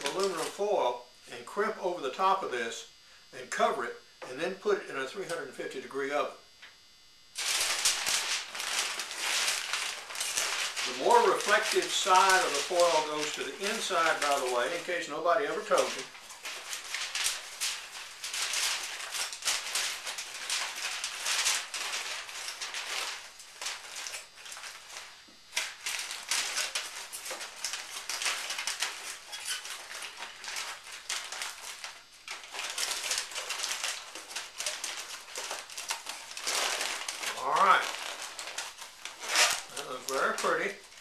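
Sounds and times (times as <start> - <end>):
aluminum foil crinkling: 0.0 - 0.7, 7.4 - 41.0.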